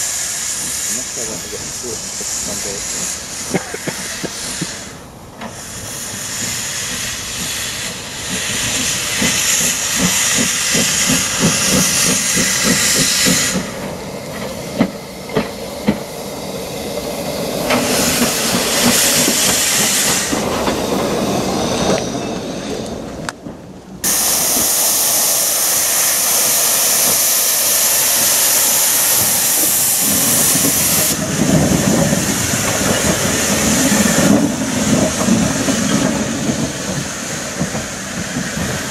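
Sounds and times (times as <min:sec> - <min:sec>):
steam hiss: 0:00.0 - 0:22.9, 0:24.0 - 0:38.9
loud rush of steam: 0:00.0 - 0:38.9
steam locomotive exhaust beats: 0:00.0 - 0:38.9.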